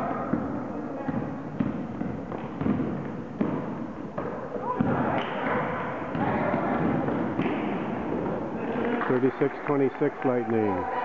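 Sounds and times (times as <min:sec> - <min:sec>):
voices in a gym: 0:00.0 - 0:02.6, 0:03.2 - 0:11.0
basketball bouncing on gym floor: 0:00.0 - 0:08.4.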